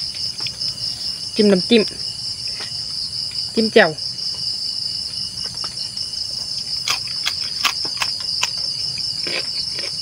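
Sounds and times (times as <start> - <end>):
crickets trilling: 0.0 - 10.0.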